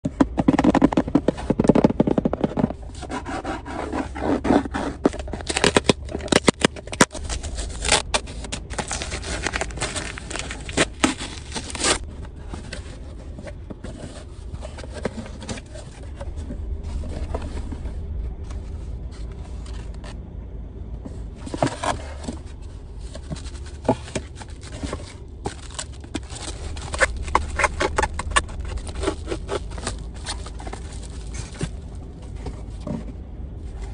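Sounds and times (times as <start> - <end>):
low steady hum: 0.0 - 33.9
cardboard tearing and crackling: 0.3 - 12.9, 23.0 - 31.8.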